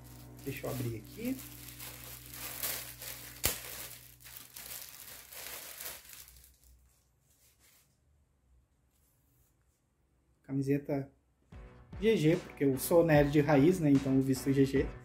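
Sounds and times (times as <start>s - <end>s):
plastic bag crinkling and tearing: 0.0s - 7.0s.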